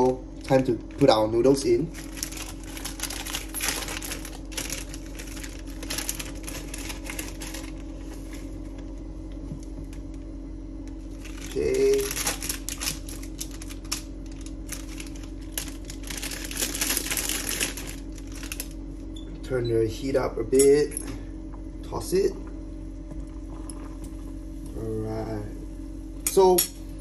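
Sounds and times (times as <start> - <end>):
steady low hum: 0.0 - 27.0
plastic packaging crinkling: 0.4 - 9.0, 10.8 - 18.8.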